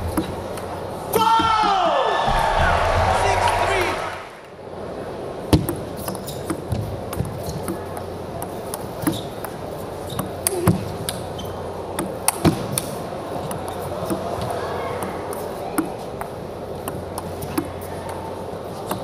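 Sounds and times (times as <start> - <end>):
faint arena hush: 1.9 - 4.6.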